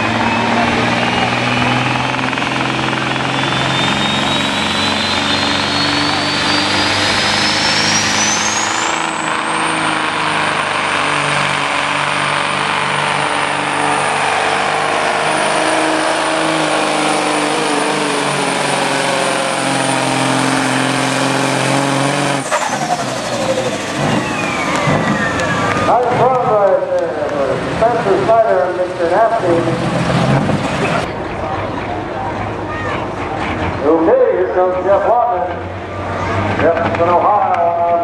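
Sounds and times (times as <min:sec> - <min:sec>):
diesel engine at full load: 0:00.0 - 0:38.0
high turbo whistle: 0:03.1 - 0:11.8, 0:22.4 - 0:26.1.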